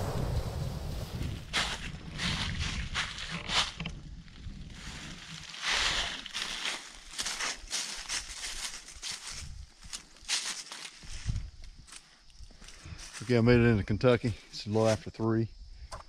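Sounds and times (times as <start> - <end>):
footsteps crunching dry leaves: 1.5 - 3.8, 4.6 - 13.4.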